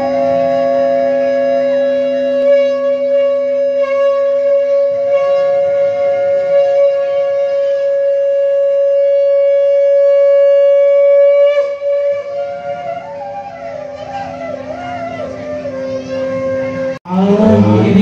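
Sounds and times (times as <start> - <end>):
conch shell long note: 0.0 - 18.0.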